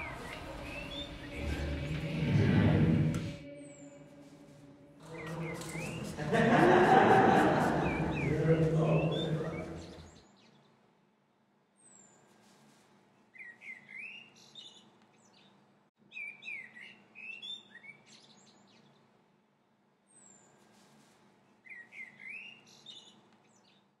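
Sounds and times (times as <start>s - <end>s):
birds chirping and whistling: 0.0s - 2.1s, 5.0s - 10.5s, 13.4s - 15.5s, 16.1s - 18.8s, 21.7s - 23.6s.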